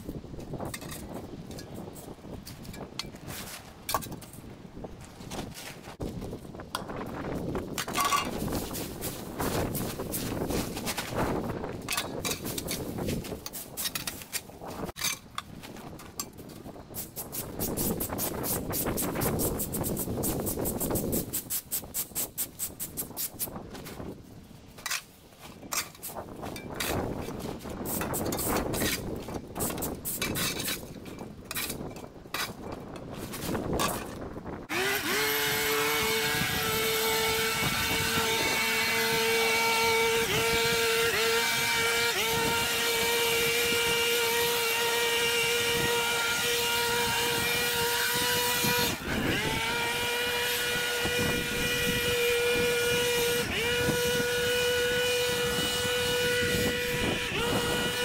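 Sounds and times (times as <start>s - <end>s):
rake scraping leaves on brick: 0.5s - 4.4s, 7.4s - 16.0s, 24.7s - 58.0s
petrol leaf blower running: 34.7s - 58.0s.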